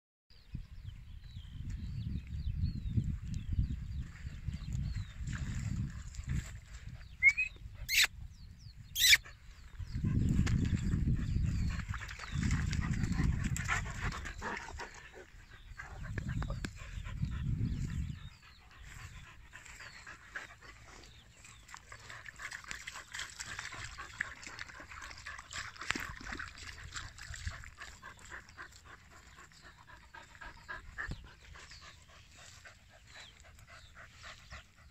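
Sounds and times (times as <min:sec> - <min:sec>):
paw ticks and rustles: 0:10.3 - 0:34.9
dog panting: 0:12.9 - 0:25.8.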